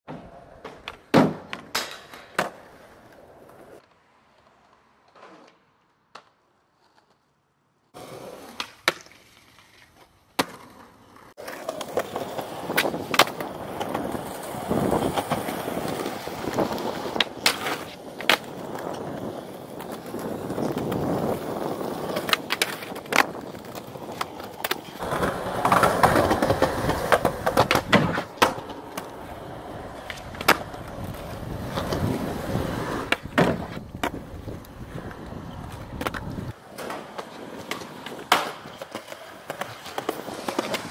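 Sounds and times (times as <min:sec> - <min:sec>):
skateboard snapping and clacking: 0:00.1 - 0:03.2, 0:08.5 - 0:10.8, 0:11.4 - 0:19.1, 0:22.1 - 0:29.2, 0:29.8 - 0:32.1, 0:33.0 - 0:40.9
skateboard wheels rolling on pavement: 0:00.1 - 0:40.9.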